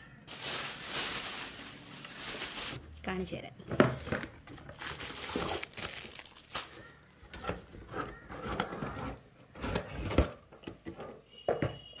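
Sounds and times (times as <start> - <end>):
plastic packaging crinkling: 0.3 - 2.8, 4.7 - 7.0.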